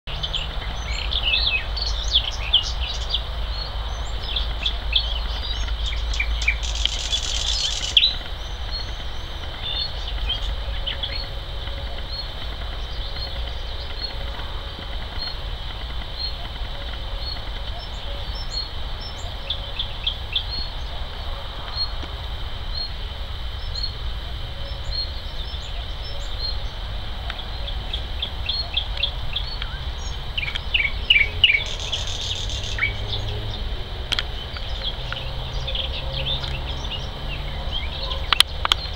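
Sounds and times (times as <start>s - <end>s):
birds singing varied phrases: 22.6s - 38.9s.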